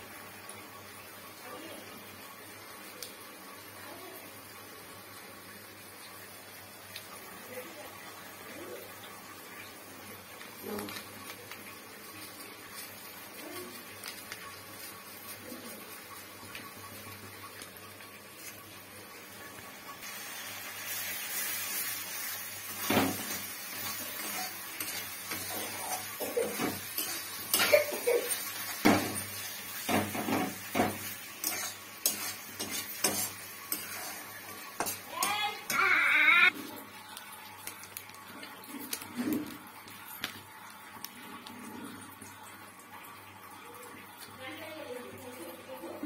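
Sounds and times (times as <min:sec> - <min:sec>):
frying sizzle: 0:00.0 - 0:46.0
metal spatula scraping a pan: 0:22.8 - 0:35.8.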